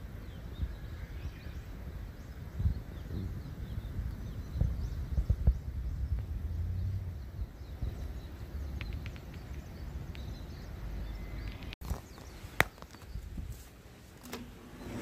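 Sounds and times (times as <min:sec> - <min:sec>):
low rumble: 0:03.1 - 0:08.8
light clicks and taps: 0:08.8 - 0:10.3
sharp click: 0:08.8 - 0:10.3.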